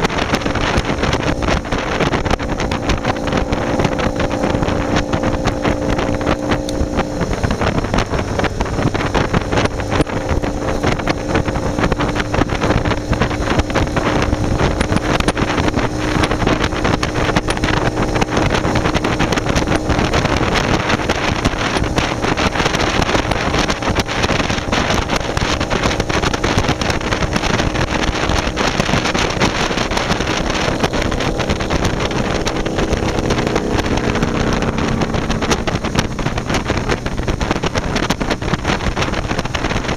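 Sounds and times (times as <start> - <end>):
motorcycle engine cruising: 0.0 - 39.9
wind buffeting microphone: 0.0 - 39.9.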